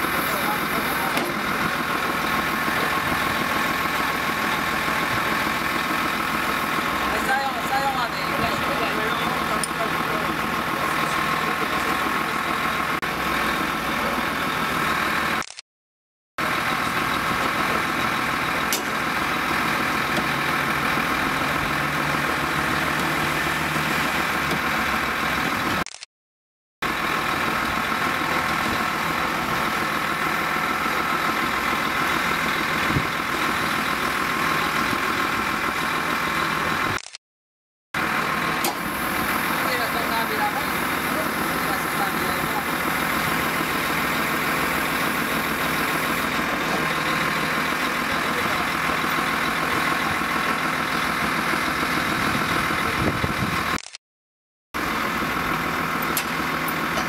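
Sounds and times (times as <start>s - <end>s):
truck engine running: 0.0s - 15.6s, 16.4s - 26.0s, 26.8s - 37.2s, 38.0s - 54.0s, 54.8s - 57.0s.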